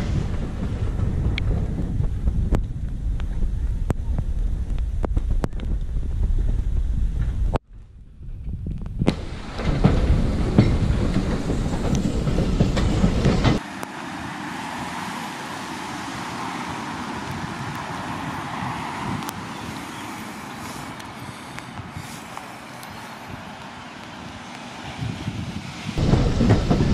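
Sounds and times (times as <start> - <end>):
railway carriage rumbling: 0.0 - 4.7, 5.9 - 26.9
wheels clicking over rails: 9.0 - 24.8, 26.0 - 26.9.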